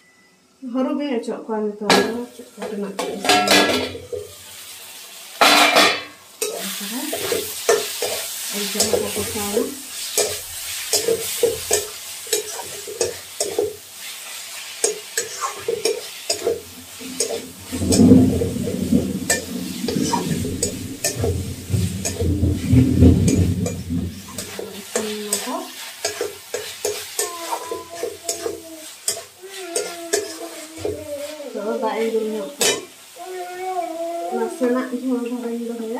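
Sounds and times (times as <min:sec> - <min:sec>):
food frying sizzle: 0:01.8 - 0:35.9
metal spatula scraping a pan: 0:03.0 - 0:04.3, 0:05.4 - 0:32.9
low rumble: 0:16.7 - 0:24.5.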